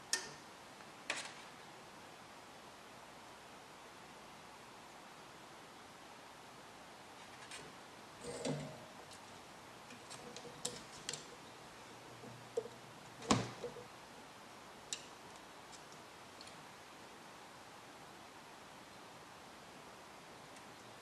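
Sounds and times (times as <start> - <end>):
hand tools clicking and tapping: 9.9 - 13.9.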